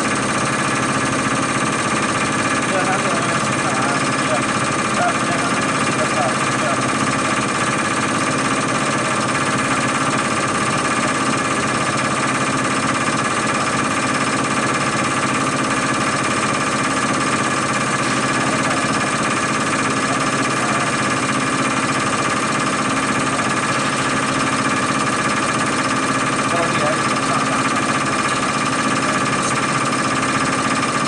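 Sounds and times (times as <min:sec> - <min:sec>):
rapid mechanical rattle: 0:00.0 - 0:31.0
steady whine: 0:00.0 - 0:31.0.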